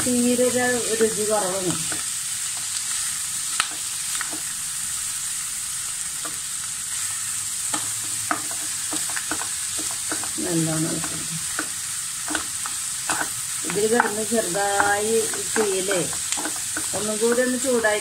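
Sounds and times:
clams sizzling in a pan: 0.0s - 18.0s
wooden spatula stirring: 7.7s - 10.4s, 11.0s - 17.8s
sharp clicks of scraping in pan: 11.5s - 13.4s, 14.8s - 17.4s.

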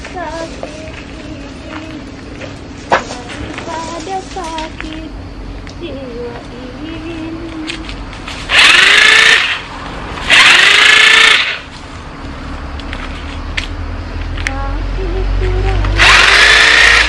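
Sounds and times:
electric saw motor whining: 8.5s - 9.7s, 10.3s - 11.7s, 16.0s - 17.0s.

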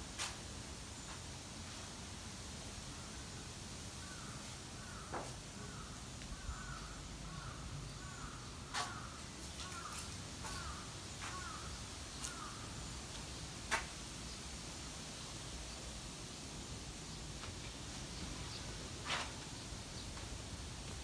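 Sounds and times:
crow cawing: 4.0s - 12.7s.

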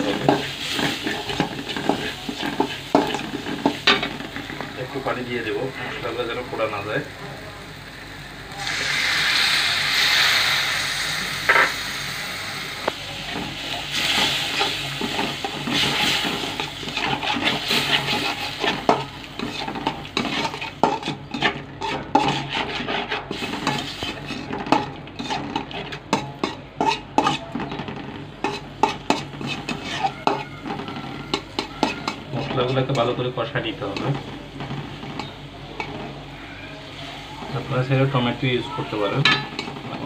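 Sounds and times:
metal spatula scraping wok: 0.0s - 6.1s, 13.3s - 36.2s, 38.0s - 40.0s
water sizzling in hot wok: 0.0s - 27.4s, 28.4s - 40.0s.

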